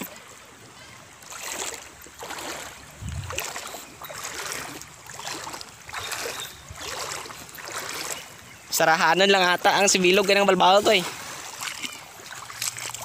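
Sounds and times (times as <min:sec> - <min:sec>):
wading through shallow water: 0:00.0 - 0:13.0.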